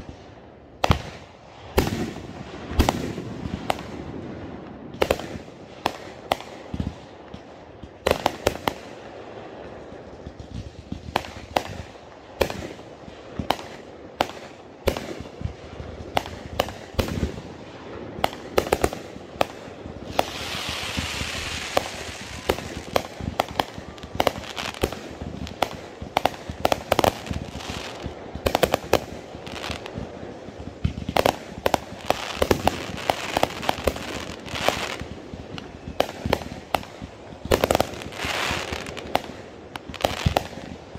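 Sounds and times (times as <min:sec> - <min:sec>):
firework bangs: 0:00.8 - 0:40.9
firework hissing crackle: 0:15.9 - 0:40.9.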